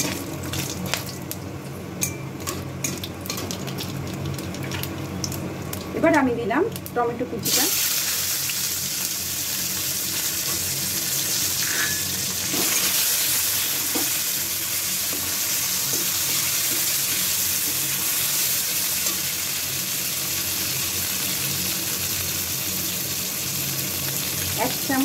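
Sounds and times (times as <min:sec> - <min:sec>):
tomato sizzling in hot oil: 0:02.4 - 0:25.0
metal spatula scraping pan: 0:11.6 - 0:12.9.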